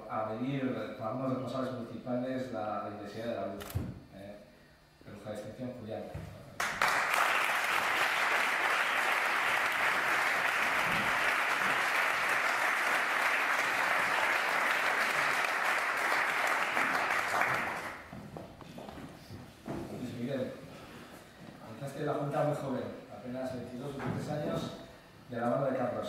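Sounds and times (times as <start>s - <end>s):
audience applauding: 6.6s - 18.1s.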